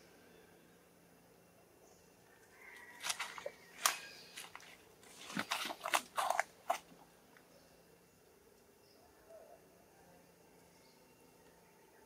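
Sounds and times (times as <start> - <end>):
monkey crunching food: 2.9 - 7.0.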